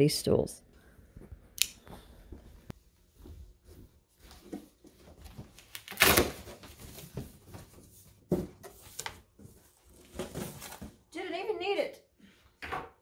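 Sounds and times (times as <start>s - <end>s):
cardboard tearing: 5.7s - 6.8s.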